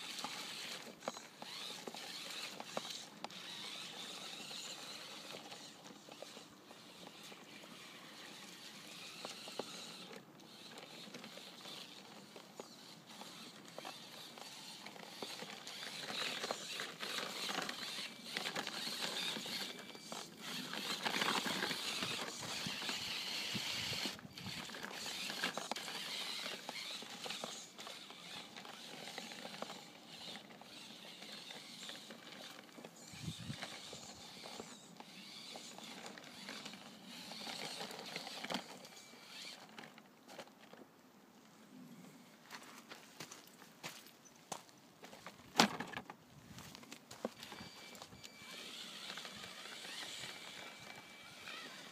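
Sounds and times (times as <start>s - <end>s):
toy car motor whirring: 0.0s - 40.8s, 47.1s - 51.9s.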